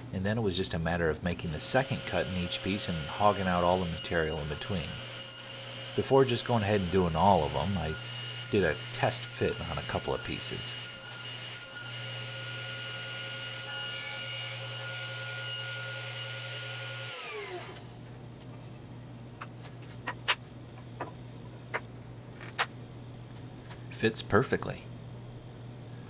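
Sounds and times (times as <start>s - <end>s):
table saw whine: 1.4s - 18.0s
wood pieces knocking: 20.0s - 22.8s.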